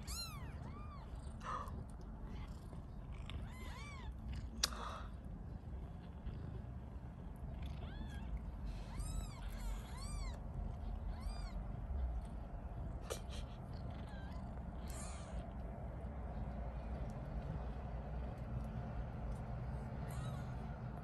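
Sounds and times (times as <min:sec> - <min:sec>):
kittens mewing: 0:00.0 - 0:05.1, 0:07.4 - 0:15.6, 0:19.8 - 0:21.0
low background rumble: 0:00.0 - 0:21.0.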